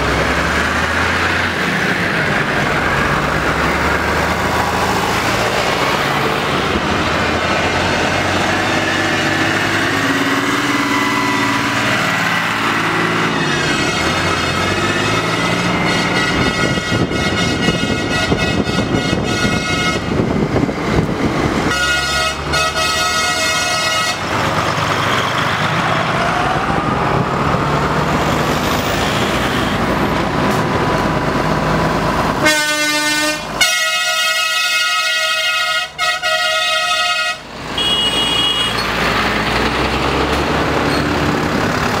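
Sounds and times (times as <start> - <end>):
tractor engines running: 0.0 - 42.0
tyres on tarmac: 0.0 - 42.0
horn blasts: 13.2 - 20.2, 21.7 - 24.3, 32.4 - 38.8.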